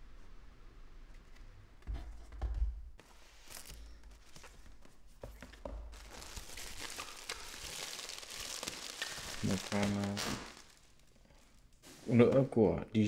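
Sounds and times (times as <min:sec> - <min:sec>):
bubble wrap rustling and crinkling: 0:03.2 - 0:12.5.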